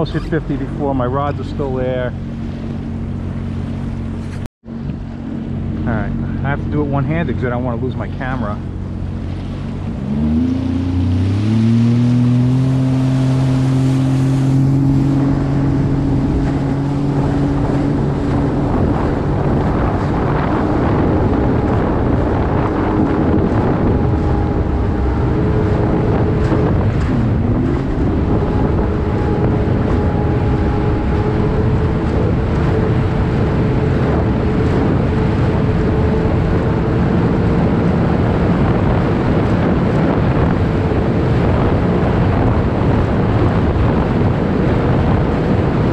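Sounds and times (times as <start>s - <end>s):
rushing water and wind: 0.0s - 45.9s
watercraft engine accelerating: 0.0s - 45.9s.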